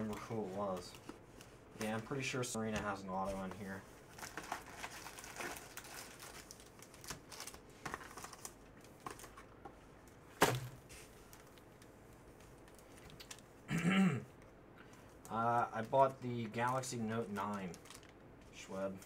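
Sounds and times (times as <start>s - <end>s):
card packs rustling and clicking: 0.0s - 9.6s, 14.8s - 19.0s.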